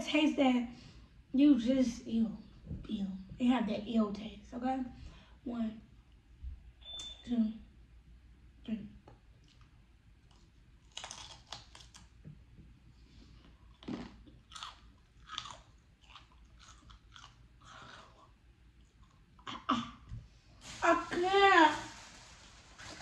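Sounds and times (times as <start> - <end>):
person chewing with wet crunches: 9.1 - 12.6, 13.2 - 19.6.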